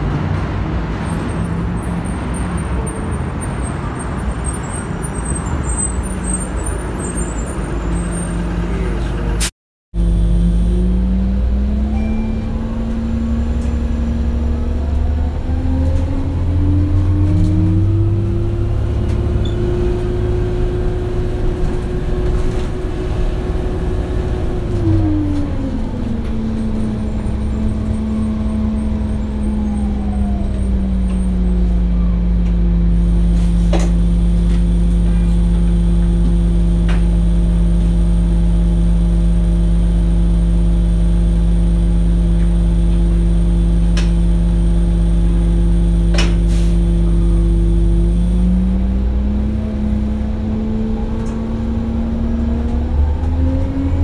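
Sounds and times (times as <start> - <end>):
bus engine rumbling: 0.0 - 54.0.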